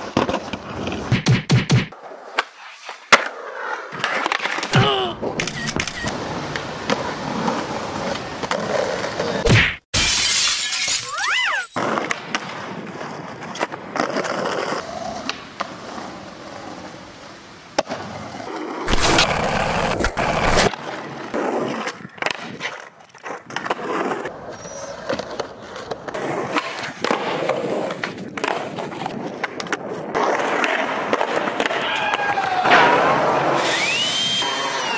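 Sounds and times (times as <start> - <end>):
skateboard wheels on brick wall: 0.0 - 1.2, 1.9 - 34.9
skateboard wheels rolling on concrete: 0.0 - 1.2, 1.9 - 9.5, 11.1 - 34.9
skateboard pops and landings: 0.0 - 5.4, 17.7 - 24.3, 25.0 - 33.6.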